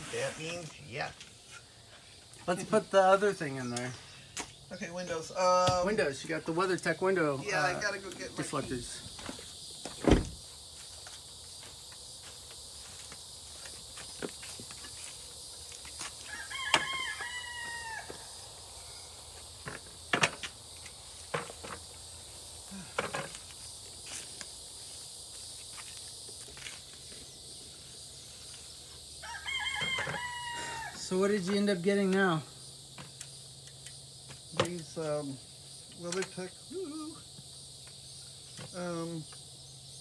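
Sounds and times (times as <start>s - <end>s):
rooster crowing: 16.2s - 19.0s, 29.2s - 31.1s.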